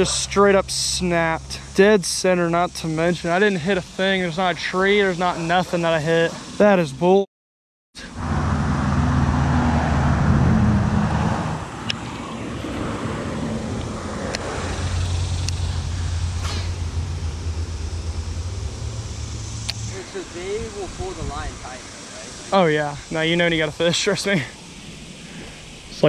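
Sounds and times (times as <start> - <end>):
motor vehicle engine hum: 8.0 - 26.0.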